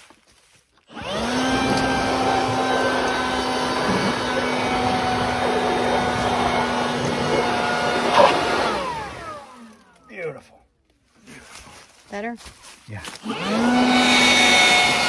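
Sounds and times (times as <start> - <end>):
small electric motor whirring: 0.9 - 10.1, 13.2 - 15.0.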